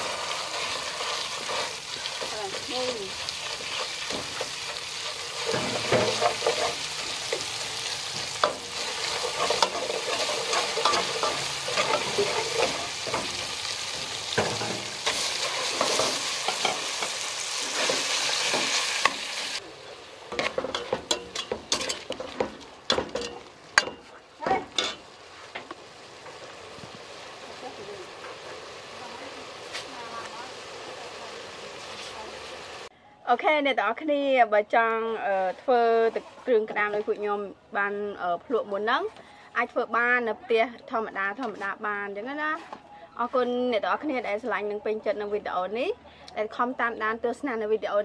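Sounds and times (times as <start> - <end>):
metal spatula scraping pot: 0.0 - 19.6, 20.3 - 25.7
meat sizzling in oil: 0.0 - 32.9.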